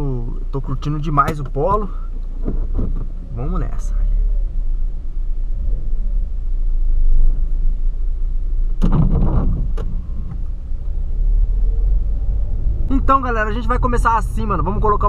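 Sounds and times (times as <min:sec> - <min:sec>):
car engine and road rumble: 0:00.0 - 0:15.0
short knock with clatter: 0:08.8 - 0:10.4.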